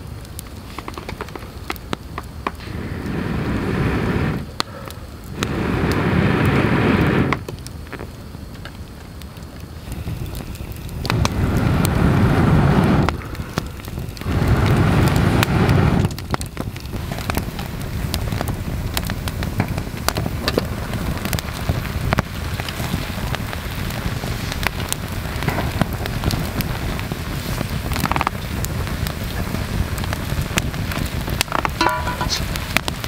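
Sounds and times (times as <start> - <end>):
campfire crackling and popping: 0.0 - 33.0
loud low rushes of noise: 2.5 - 7.4, 9.8 - 16.3
heavy rain: 9.8 - 33.0.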